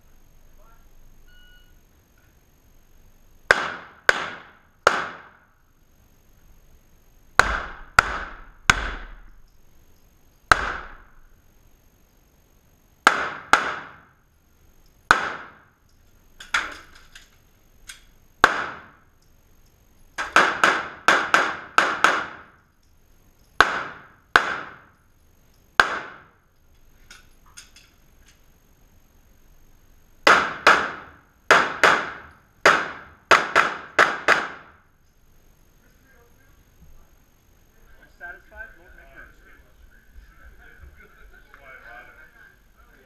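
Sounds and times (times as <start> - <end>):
handgun shots echoing indoors: 3.5 - 5.4, 30.2 - 34.8.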